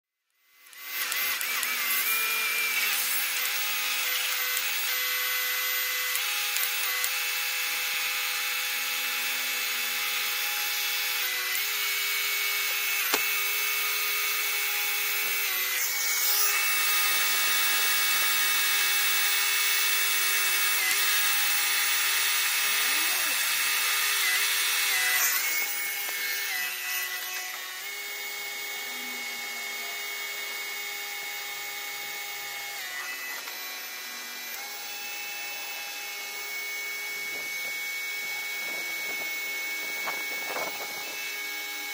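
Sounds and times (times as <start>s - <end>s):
pressure washer motor whine: 8.9s - 24.8s, 25.4s - 41.9s.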